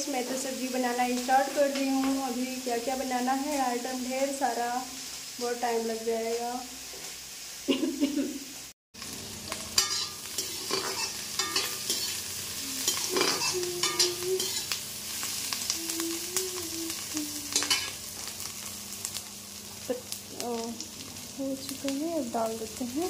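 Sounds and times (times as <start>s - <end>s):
capsicum sizzling in pan: 0.0s - 23.0s
steel spatula scraping pan: 9.8s - 12.2s, 12.8s - 14.8s.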